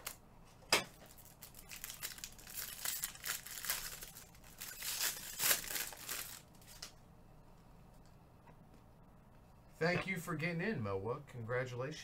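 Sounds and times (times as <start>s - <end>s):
packaging torn and crinkled: 0.9s - 7.0s.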